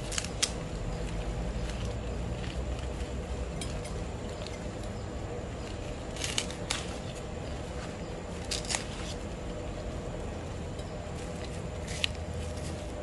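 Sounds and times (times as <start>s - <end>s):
knife snapping through leaves: 0.0s - 3.0s, 5.7s - 7.2s, 8.4s - 9.2s
steady background hiss: 0.0s - 13.0s.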